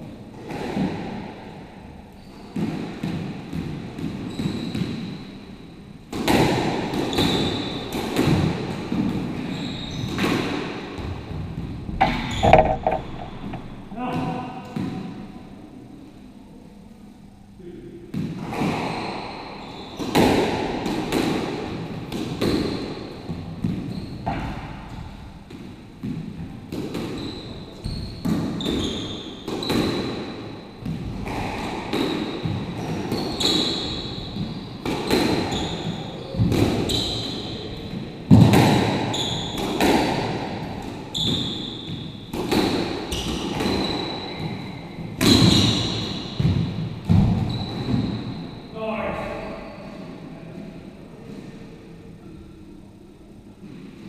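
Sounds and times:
squash ball knocking off racquets and walls: 0:10.1 - 0:15.2, 0:38.3 - 0:44.6
shoes squeaking on wooden floor: 0:12.0 - 0:13.9.

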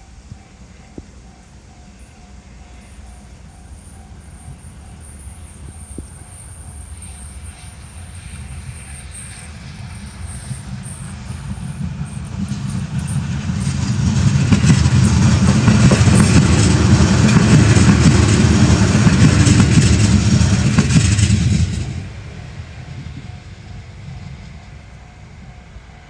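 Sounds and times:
electric train passing: 0:00.0 - 0:26.0
wheels clattering over rail joints: 0:08.6 - 0:22.5.

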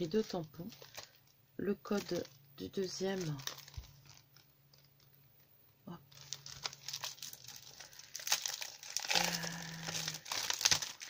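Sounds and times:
plastic packet crinkling: 0:00.0 - 0:11.0.

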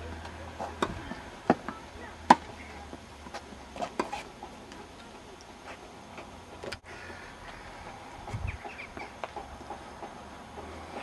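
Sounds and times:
tennis ball bouncing on court: 0:00.6 - 0:04.2
tennis ball struck by racket: 0:00.7 - 0:02.6.

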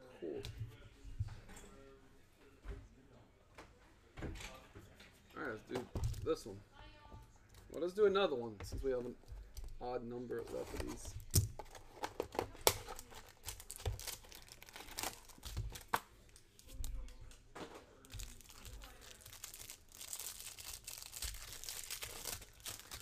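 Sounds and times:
plastic wrapper crinkling and tearing: 0:10.8 - 0:17.0, 0:18.0 - 0:23.0.

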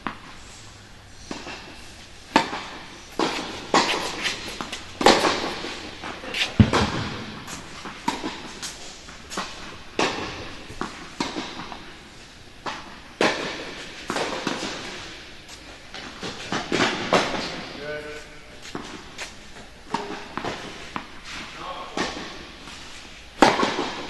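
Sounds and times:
ball bouncing on hard court: 0:01.3 - 0:08.7, 0:09.4 - 0:11.8, 0:23.4 - 0:24.0
tennis ball hitting racket: 0:01.3 - 0:11.9, 0:12.6 - 0:15.0, 0:23.4 - 0:24.0.

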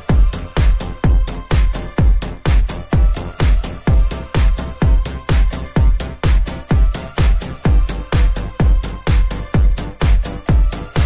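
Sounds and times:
electronic music: 0:00.0 - 0:11.0
kick drum beats: 0:00.0 - 0:11.0.

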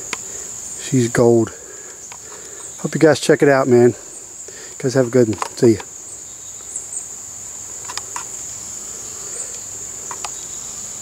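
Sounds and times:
crickets chirping chorus: 0:00.0 - 0:11.0
faint clicks: 0:09.5 - 0:10.4.

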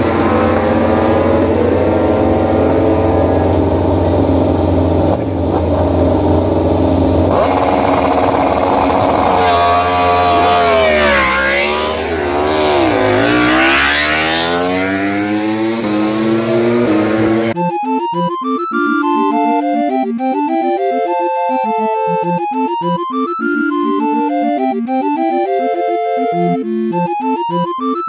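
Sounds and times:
race bike engines revving: 0:00.0 - 0:17.6.

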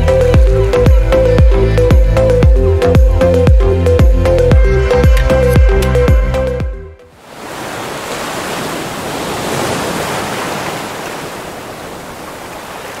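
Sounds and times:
ocean surf washing ashore: 0:07.1 - 0:13.0.

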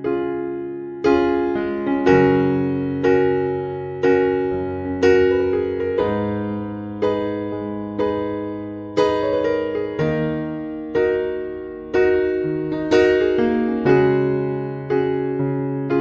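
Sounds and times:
gentle keyboard chords: 0:00.0 - 0:16.0.

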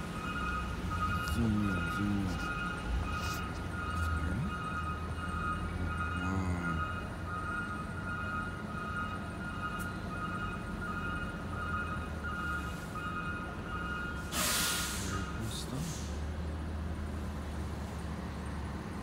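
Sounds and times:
car engine humming: 0:00.0 - 0:10.7.

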